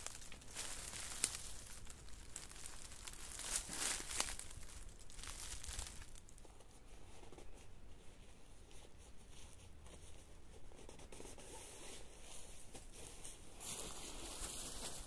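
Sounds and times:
rustling in dry leaves: 0.0 - 7.7, 11.7 - 15.0.

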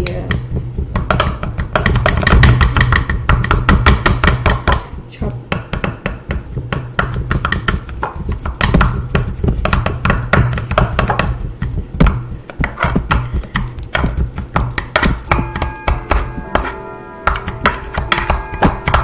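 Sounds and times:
spoons chopping on wooden block: 0.1 - 19.0
held musical tones: 15.2 - 19.0.

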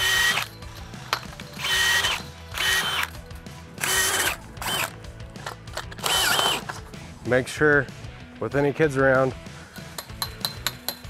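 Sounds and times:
cordless drill motor whine: 0.0 - 0.5, 1.6 - 3.2, 3.8 - 4.9, 6.0 - 6.8.

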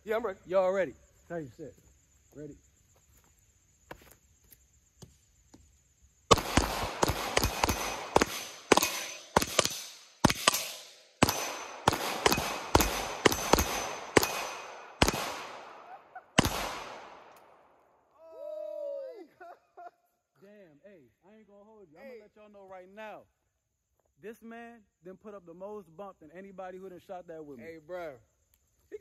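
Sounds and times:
pistol shots: 6.3 - 17.5.

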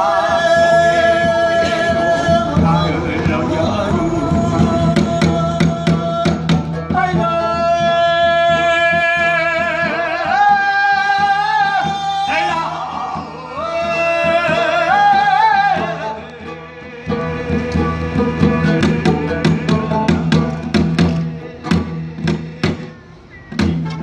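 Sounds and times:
drum strokes: 0.0 - 24.0.

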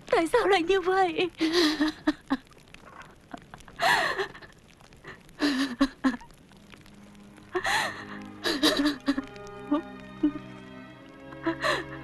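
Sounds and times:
woman crying: 1.4 - 2.5, 3.8 - 6.3, 7.6 - 10.4, 11.4 - 12.0.

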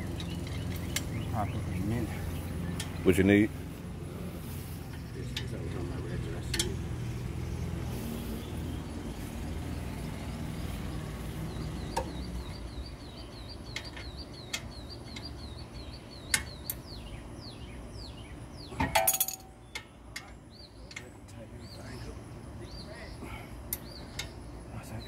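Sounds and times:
small bird chirping: 0.0 - 25.0
loud metal clanks with ring: 18.8 - 19.6
metal tools clinking: 18.8 - 19.6.

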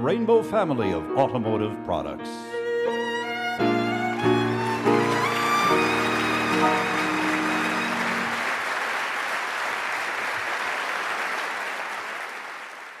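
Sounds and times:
instrumental closing notes: 0.5 - 8.4
audience applauding: 3.5 - 13.0.

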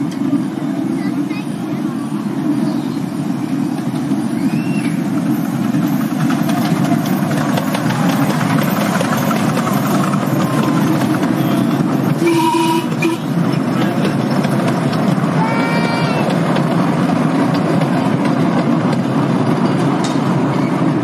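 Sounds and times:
train carriages rumbling: 0.0 - 21.0
wheels clicking over track: 0.0 - 21.0
train wheel squeal: 2.5 - 13.4, 19.4 - 21.0.

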